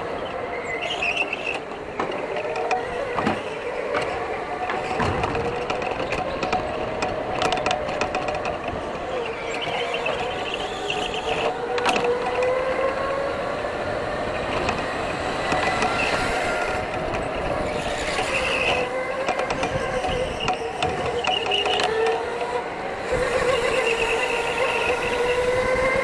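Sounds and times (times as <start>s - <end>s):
tyre and chassis noise: 0.0s - 26.0s
electric motor whine: 9.1s - 26.0s.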